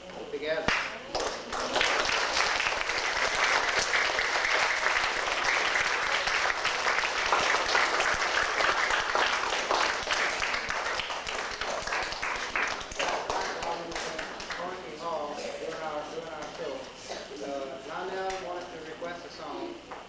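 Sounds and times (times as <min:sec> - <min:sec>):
children applauding: 0:01.1 - 0:14.7.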